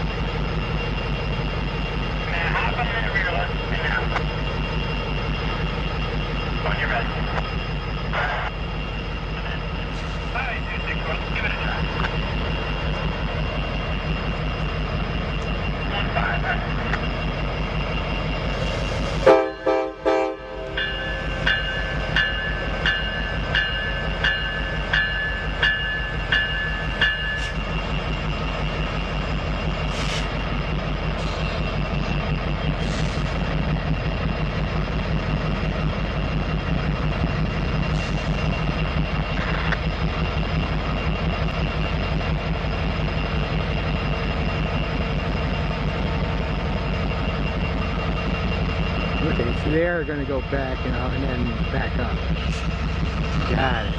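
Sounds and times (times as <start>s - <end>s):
diesel engine low drone: 0.0s - 26.3s, 26.9s - 53.9s
locomotive horn blasts: 19.2s - 20.8s
bell ringing: 20.7s - 27.5s.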